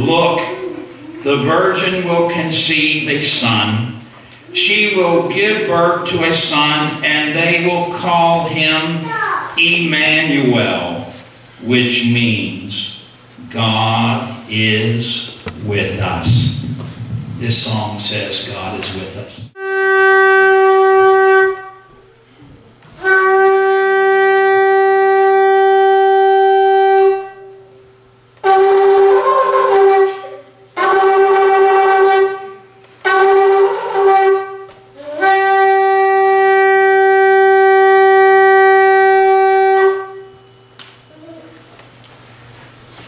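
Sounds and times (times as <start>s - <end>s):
ram's horn blasts: 19.3s - 22.0s, 23.0s - 27.7s, 28.4s - 40.8s.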